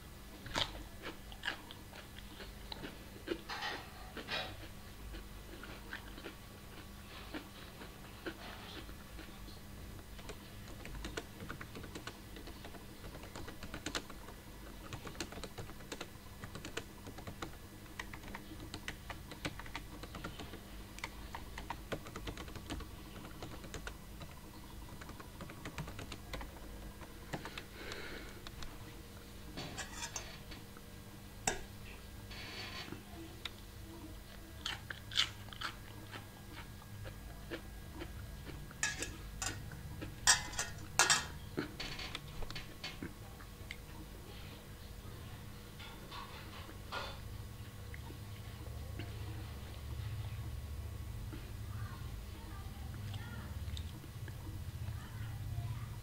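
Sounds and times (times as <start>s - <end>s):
faint steady hum: 0.0s - 56.0s
keyboard typing: 10.2s - 27.7s.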